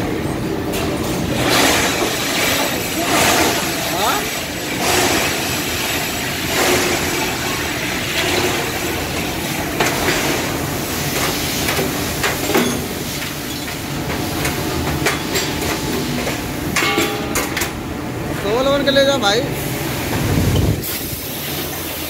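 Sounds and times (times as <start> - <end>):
foundry machinery din: 0.0 - 22.0
sharp metallic clanks: 16.7 - 17.8.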